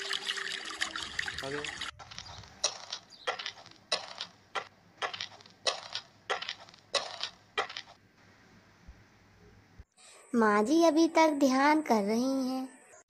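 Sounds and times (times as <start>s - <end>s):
footsteps crunching on gravel: 2.0s - 8.0s.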